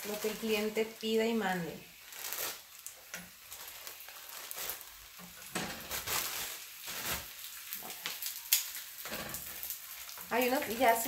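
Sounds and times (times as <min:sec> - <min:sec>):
tortillas sizzling in lard: 0:00.0 - 0:11.0.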